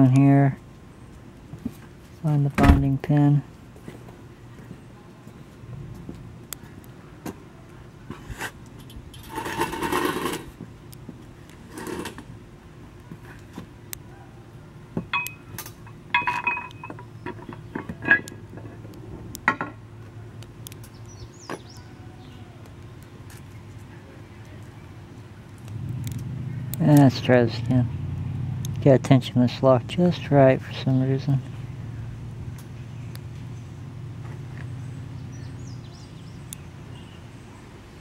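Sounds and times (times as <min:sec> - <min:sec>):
scraping rustle: 0:09.2 - 0:10.6, 0:11.6 - 0:12.3.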